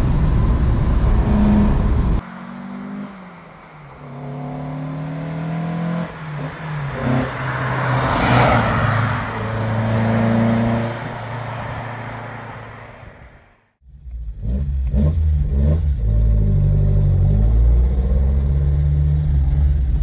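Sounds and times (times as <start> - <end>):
car engine accelerating past: 0.2 - 12.6.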